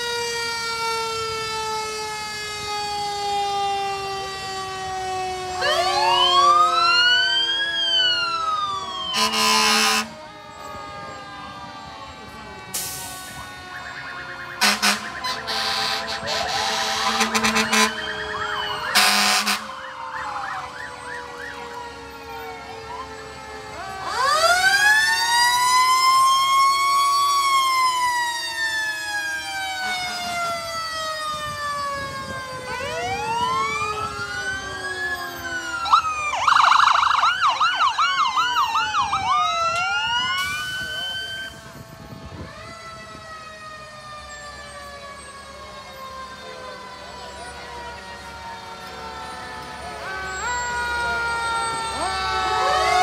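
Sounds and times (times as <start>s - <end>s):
fast yelping siren: 0.0s - 53.0s
fire truck sirens wailing: 0.0s - 53.0s
loud horn blasts: 9.1s - 10.2s, 14.6s - 19.8s.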